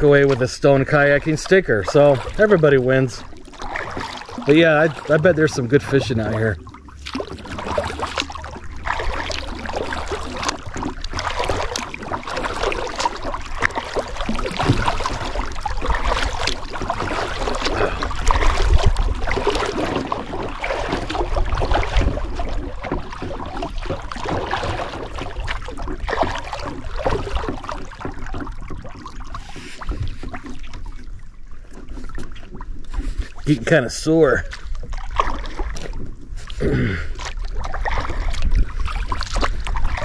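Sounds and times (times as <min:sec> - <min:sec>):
kayak paddle strokes splashing: 0:00.0 - 0:40.0
water sloshing along hull: 0:00.0 - 0:40.0
wind rumble on microphone: 0:17.8 - 0:26.0, 0:37.8 - 0:40.0.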